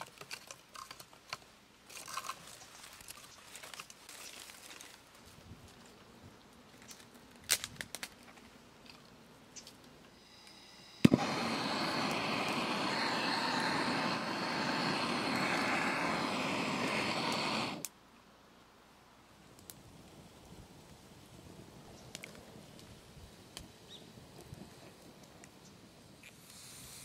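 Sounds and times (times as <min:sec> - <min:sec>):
twigs snapping and rustling: 0:00.0 - 0:05.9, 0:06.7 - 0:09.0
gas torch hissing: 0:10.2 - 0:17.9, 0:26.2 - 0:27.0
gas torch click: 0:10.4 - 0:18.0.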